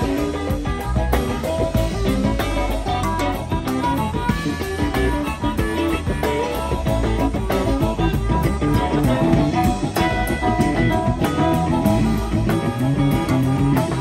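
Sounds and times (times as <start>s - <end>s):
drum kit: 0.0s - 14.0s
electric bass: 0.0s - 14.0s
electric guitars: 0.0s - 14.0s.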